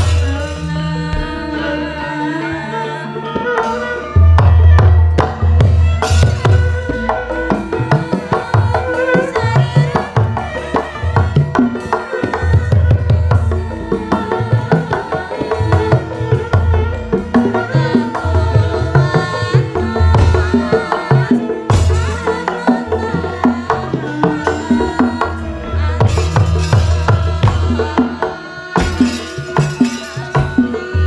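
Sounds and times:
hand drum strokes: 0.0 - 2.6, 3.3 - 31.0.

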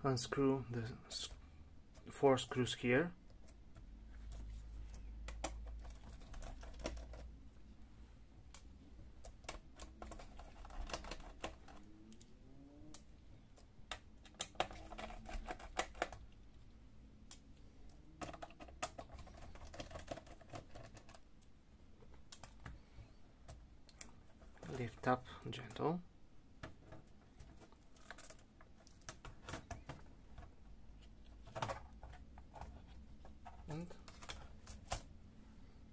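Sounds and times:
laptop keyboard keys clicking: 5.2 - 7.2, 9.2 - 12.3, 13.6 - 16.3, 18.2 - 21.2.

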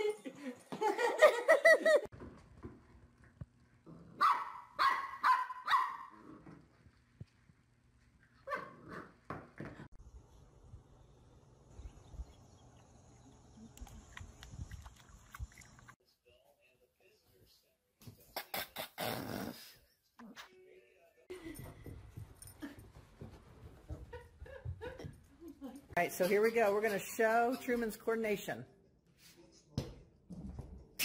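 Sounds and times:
dog barking: 4.2 - 6.2.

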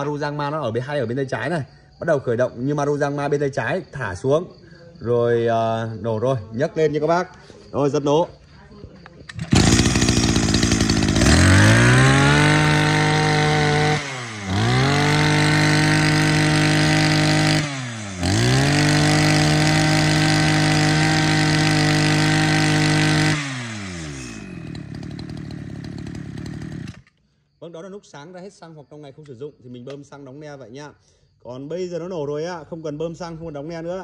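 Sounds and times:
two-stroke brush cutter engine revving: 9.3 - 27.1.

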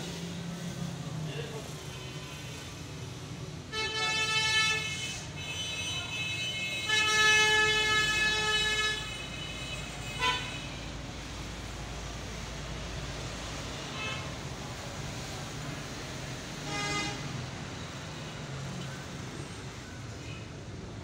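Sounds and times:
traffic rumble: 0.0 - 21.0
vehicle horns: 3.6 - 10.9, 16.6 - 17.4.

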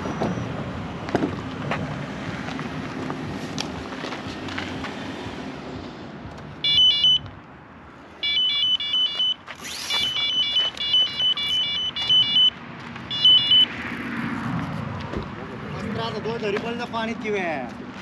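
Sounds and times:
bite alarm beeping: 6.6 - 7.3, 8.2 - 13.8.

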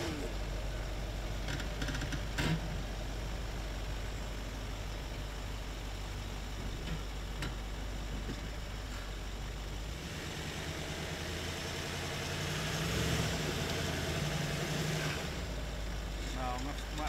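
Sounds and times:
diesel engine at low revs: 0.0 - 17.0.

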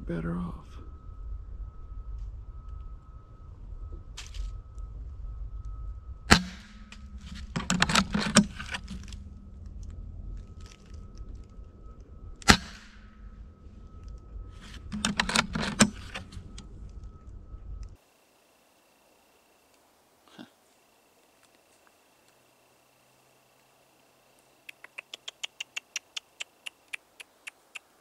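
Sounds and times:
rifle shots: 6.3 - 9.1, 12.4 - 13.2
clicking and rustling: 6.3 - 12.6, 13.9 - 18.0.

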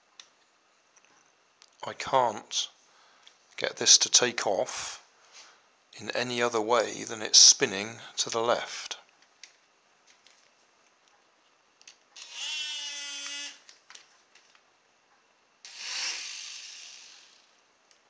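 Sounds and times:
toy helicopter rotors whirring: 12.2 - 13.6, 15.6 - 17.6.

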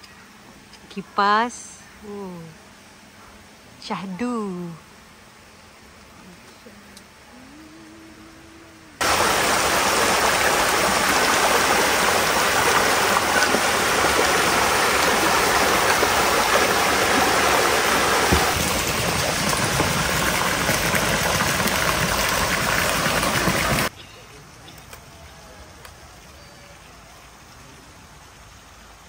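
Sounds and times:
river water rushing: 9.0 - 23.9.

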